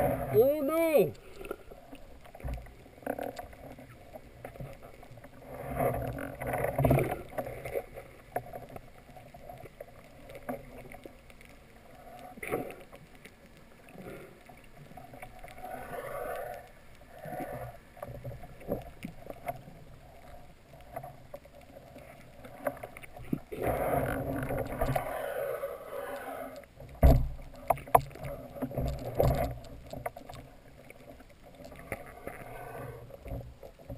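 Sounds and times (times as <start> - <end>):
small underwater clicks: 0.0 - 33.9
underwater water noise: 0.0 - 33.9.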